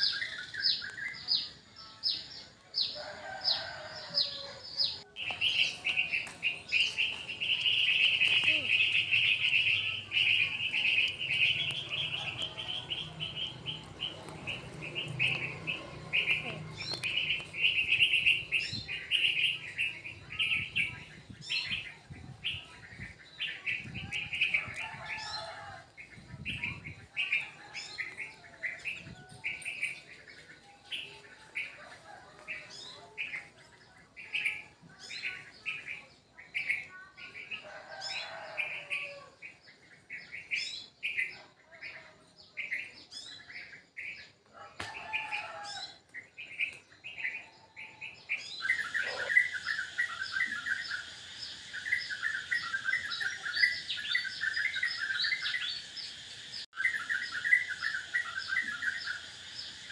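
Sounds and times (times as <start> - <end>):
bird chirping: 3.3 - 25.5, 46.3 - 59.9.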